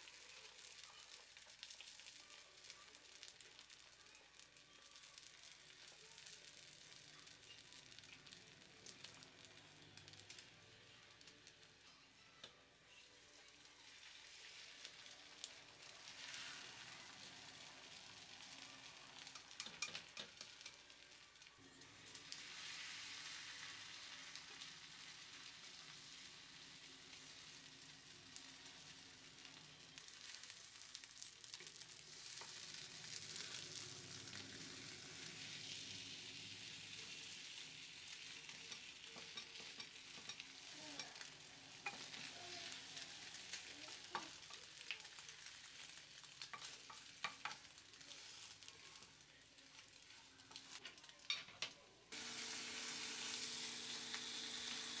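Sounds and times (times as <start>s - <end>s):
egg sizzling in a skillet: 0.0s - 55.0s
chopsticks tapping a pan: 19.2s - 20.9s, 38.3s - 42.3s, 43.0s - 45.1s, 46.4s - 47.8s
loud steady hiss: 52.2s - 55.0s.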